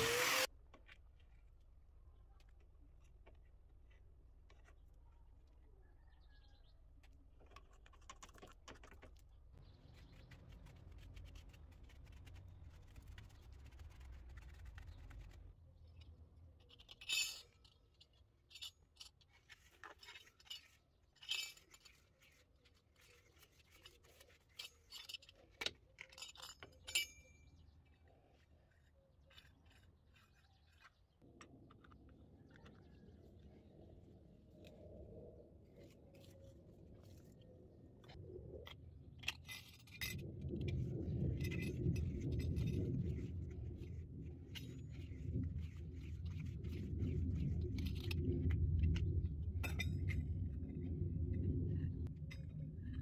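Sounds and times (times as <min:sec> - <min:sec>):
metal tools clinking: 0:16.0 - 0:22.3, 0:24.4 - 0:27.6
faint low hum: 0:31.3 - 0:53.0.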